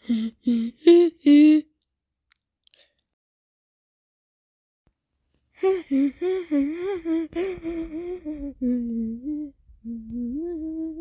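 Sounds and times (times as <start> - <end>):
high voice humming or whimpering: 0.0 - 1.7, 5.6 - 11.0.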